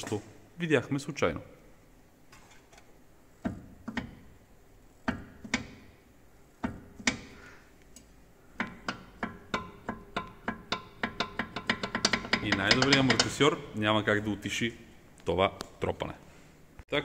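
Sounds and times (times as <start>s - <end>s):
suspension link knocking: 3.4s - 4.4s, 5.0s - 7.5s, 8.5s - 13.8s.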